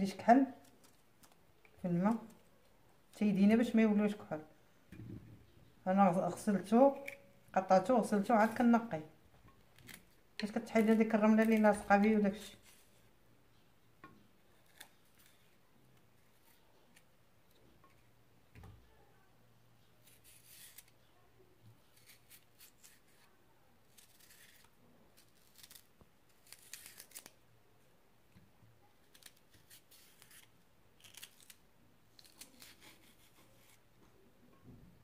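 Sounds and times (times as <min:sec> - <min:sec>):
knife scraping vegetable skin: 0:14.6 - 0:15.6, 0:20.0 - 0:21.0, 0:21.8 - 0:27.4, 0:29.0 - 0:33.8.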